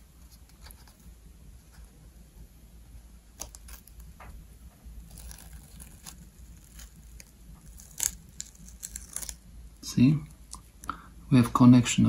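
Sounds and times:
tape peeling crackles: 3.4 - 4.1, 5.0 - 10.8.

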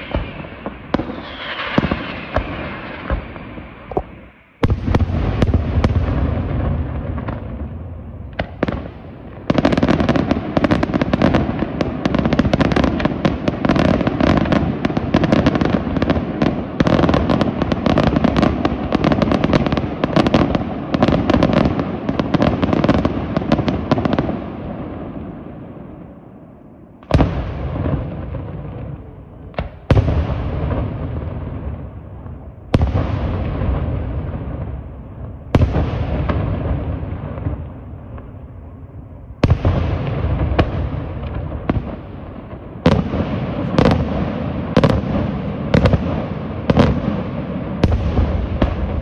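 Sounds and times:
heavy firework bang echoing: 0.0 - 16.2, 39.4 - 49.0
firework barrage crackling: 0.0 - 49.0.

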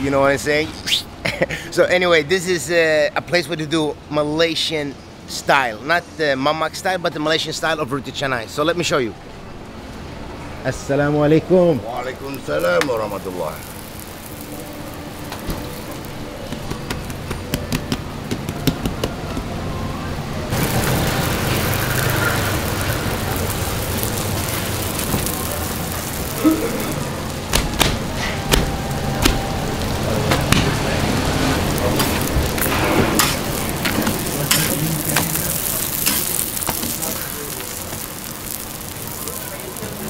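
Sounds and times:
bread sizzling on a griddle: 11.9 - 18.6, 20.5 - 40.0.

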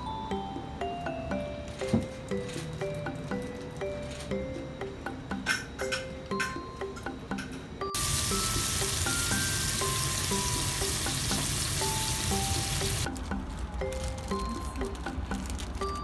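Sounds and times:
light background music: 0.0 - 16.0
sausage sizzling in a frying pan: 8.0 - 13.1.

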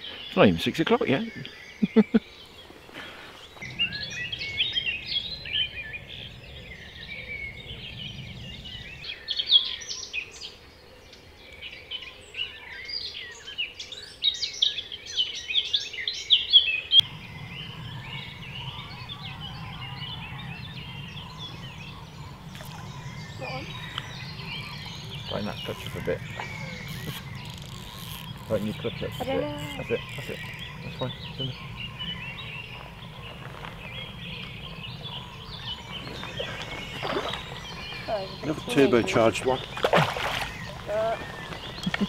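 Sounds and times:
songbirds chirping and trilling: 0.0 - 42.0
low steady hum: 16.9 - 42.0.

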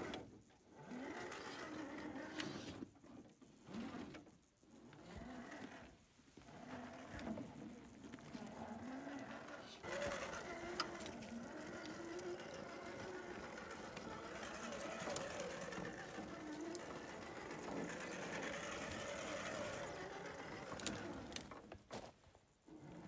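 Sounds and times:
electric motor and gears whining: 4.9 - 21.8.

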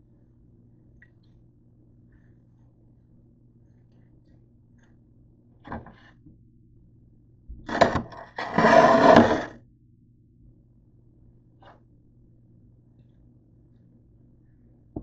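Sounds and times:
handling scrapes and rubbing: 7.7 - 9.6.

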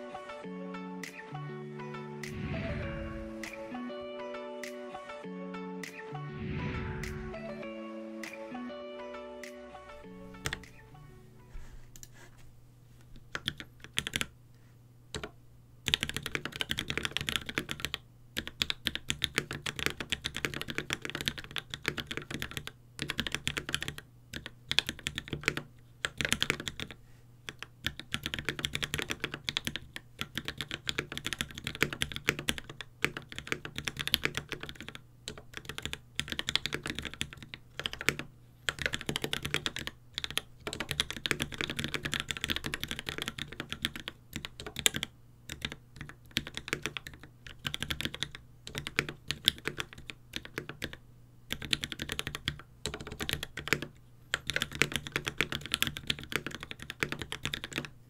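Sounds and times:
mechanical keyboard typing clacks: 13.3 - 14.3, 15.9 - 57.9.

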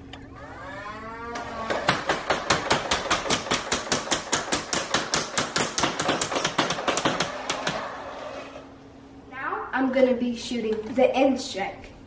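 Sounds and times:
toy blaster firing rapid shots: 1.8 - 7.9.

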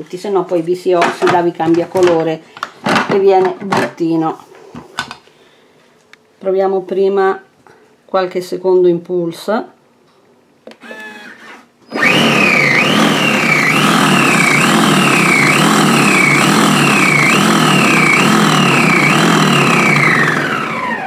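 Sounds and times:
food processor motor whining: 10.7 - 21.0.

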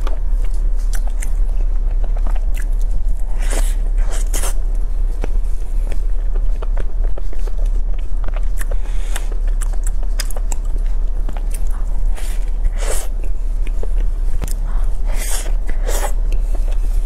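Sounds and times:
crunching crisp pastry: 0.0 - 17.0
steady low hum: 0.0 - 17.0.

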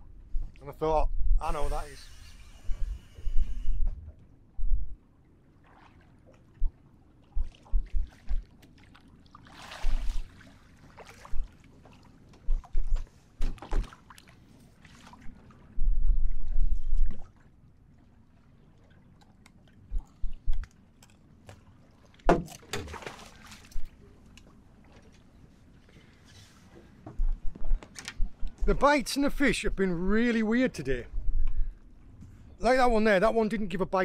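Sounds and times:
wind buffeting microphone: 0.0 - 5.0, 7.4 - 8.5, 15.7 - 17.3, 31.0 - 32.4
water sloshing against boat hull: 5.0 - 28.7.

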